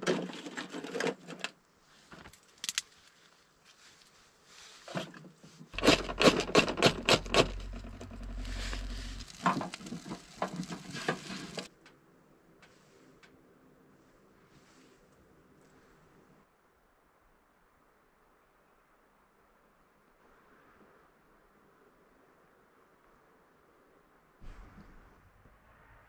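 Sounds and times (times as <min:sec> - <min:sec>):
kindling sticks clattering: 0:05.8 - 0:11.7
low rumble: 0:05.8 - 0:11.7
sharp scraping clicks: 0:05.8 - 0:11.7.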